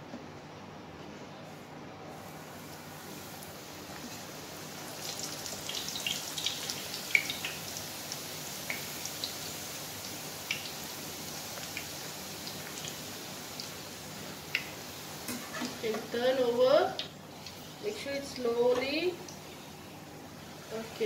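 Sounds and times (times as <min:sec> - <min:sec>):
dough sizzling in hot oil: 0:02.1 - 0:19.5
oil crackling and popping: 0:04.8 - 0:15.8.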